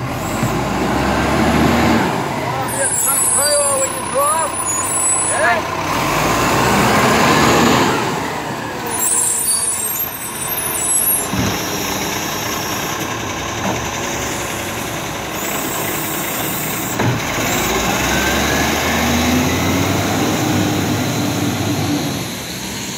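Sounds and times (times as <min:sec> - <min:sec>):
garbage truck engine running: 0:00.0 - 0:22.9.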